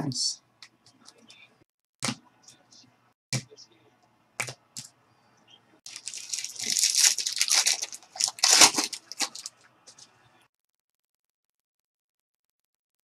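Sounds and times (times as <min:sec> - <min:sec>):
card pack wrapper tearing and crinkling: 0:05.9 - 0:09.6.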